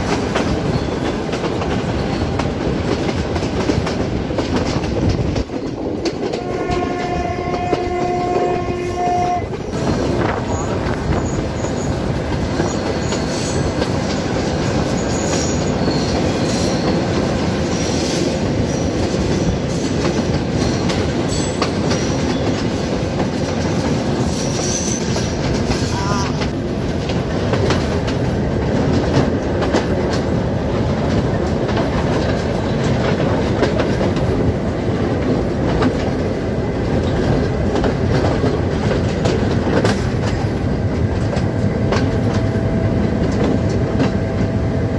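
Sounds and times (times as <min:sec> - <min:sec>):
rail joint clicks: 0:00.0 - 0:44.9
train rumbling on track: 0:00.0 - 0:44.9
high wheel squeals: 0:14.9 - 0:17.1, 0:24.3 - 0:26.2.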